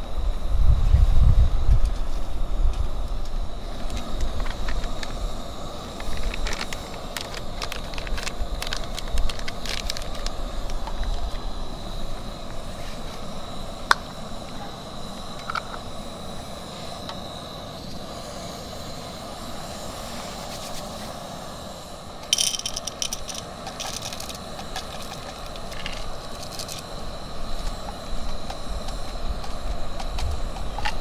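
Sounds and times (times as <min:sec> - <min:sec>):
wrapper crinkling: 0:06.0 - 0:11.1, 0:22.4 - 0:26.8.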